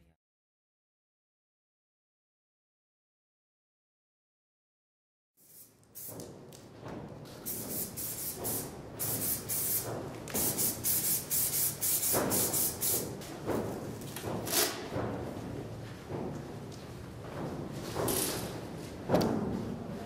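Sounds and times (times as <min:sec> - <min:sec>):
spray paint can hissing: 0:05.4 - 0:06.3, 0:07.4 - 0:13.2.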